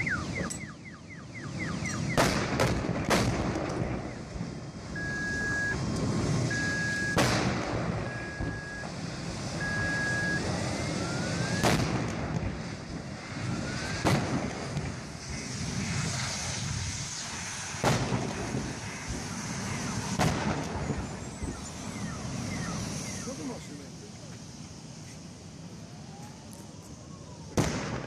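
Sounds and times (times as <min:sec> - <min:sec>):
fire rushing: 0:00.0 - 0:28.0
gas tanks exploding: 0:02.0 - 0:05.0, 0:05.6 - 0:21.1, 0:27.5 - 0:28.0
short beeps: 0:05.0 - 0:05.8, 0:06.5 - 0:07.2, 0:08.1 - 0:08.9, 0:09.6 - 0:10.4.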